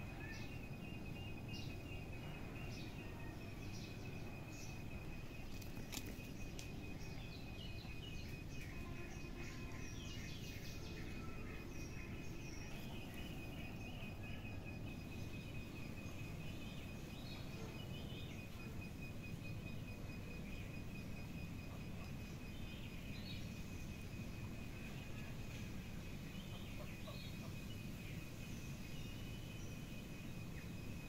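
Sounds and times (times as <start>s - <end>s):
birds chirping: 0.0s - 31.0s
faint clicks: 5.5s - 6.8s.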